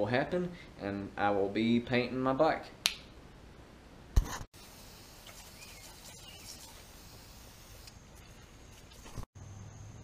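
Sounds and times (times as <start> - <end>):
low steady hiss: 0.0 - 10.0
bird chirps: 5.2 - 6.8.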